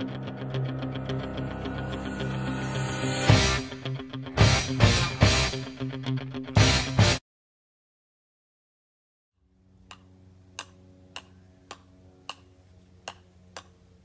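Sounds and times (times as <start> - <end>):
steady low hum: 9.4 - 14.0.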